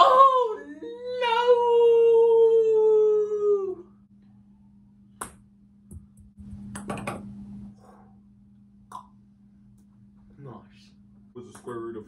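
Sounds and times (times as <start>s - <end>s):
steady low hum: 3.8s - 12.0s.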